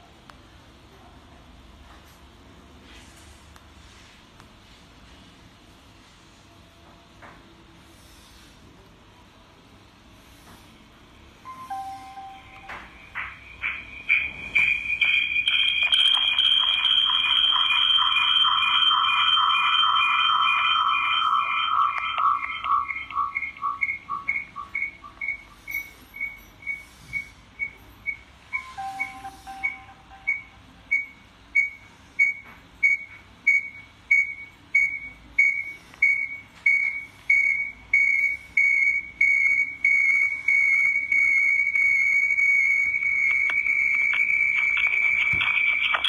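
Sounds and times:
lower second tone: 11.5s - 13.2s
high-pitched feedback whistle: 11.5s - 44.8s.

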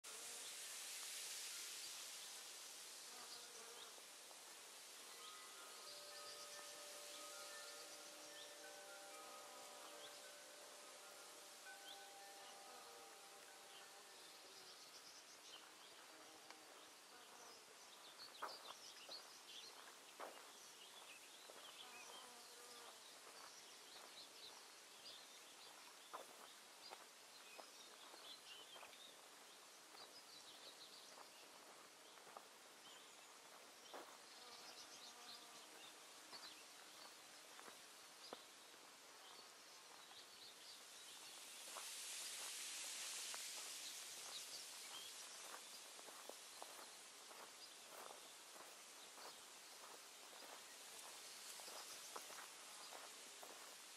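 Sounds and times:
hiss: 0.1s - 12.0s, 40.8s - 47.2s
soft high chirps: 5.1s - 16.1s.

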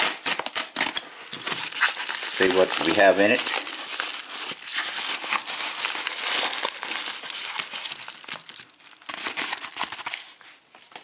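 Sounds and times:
packing wrap crinkling: 0.0s - 11.0s.

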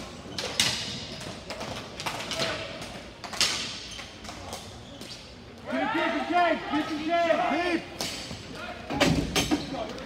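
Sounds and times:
hockey sticks and ball clacking: 0.0s - 5.7s.

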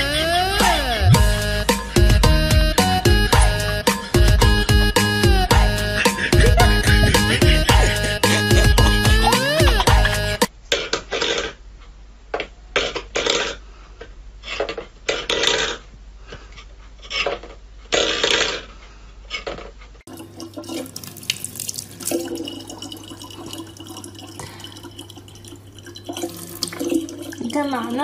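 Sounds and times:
kitchen tap running: 20.1s - 28.0s.

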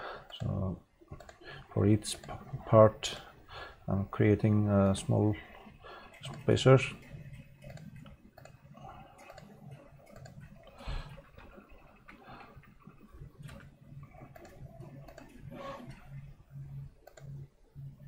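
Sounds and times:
faint low hum: 0.0s - 18.0s
computer mouse clicks: 0.3s - 0.6s, 1.2s - 1.4s, 6.1s - 16.3s, 17.0s - 17.5s.

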